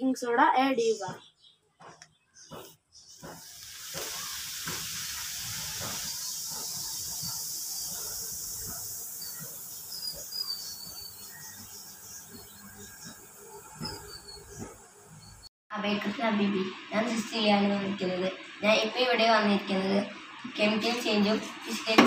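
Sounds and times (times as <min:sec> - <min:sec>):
foam fizzing and hissing: 0:03.3 - 0:11.4.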